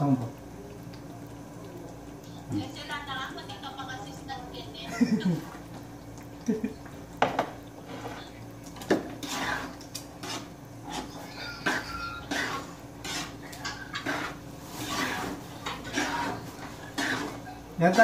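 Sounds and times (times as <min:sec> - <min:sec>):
utensil scraping against a wok: 0:07.8 - 0:18.0.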